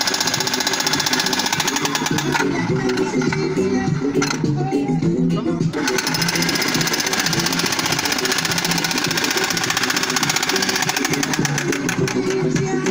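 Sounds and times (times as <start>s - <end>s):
demolition hammer breaking concrete: 0.0s - 3.5s, 6.0s - 12.9s
music with steady beat: 0.0s - 12.9s.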